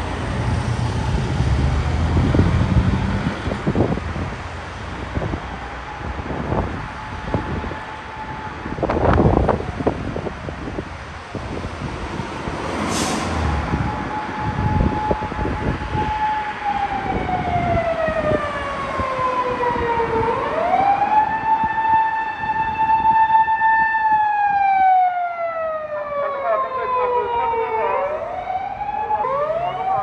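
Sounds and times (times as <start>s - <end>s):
traffic rumbling: 0.0s - 30.0s
police siren wailing: 0.7s - 2.4s, 5.2s - 10.3s, 13.5s - 30.0s.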